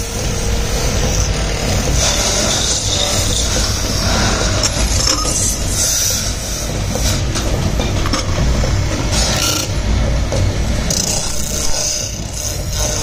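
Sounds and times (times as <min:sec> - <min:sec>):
cutting tool scraping metal: 0:00.0 - 0:07.4, 0:09.0 - 0:09.8, 0:10.8 - 0:13.0
lathe motor hum: 0:00.0 - 0:13.0.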